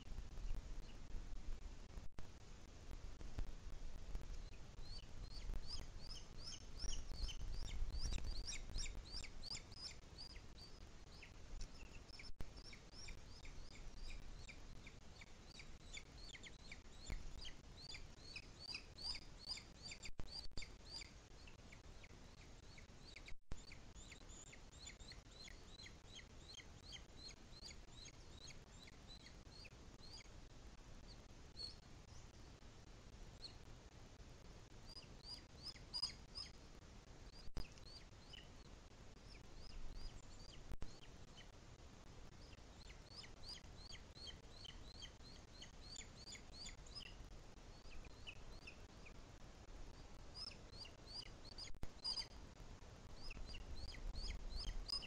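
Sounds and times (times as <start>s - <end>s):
birds chirping: 4.3s - 30.3s, 34.9s - 36.6s, 42.3s - 49.2s, 49.9s - 55.0s.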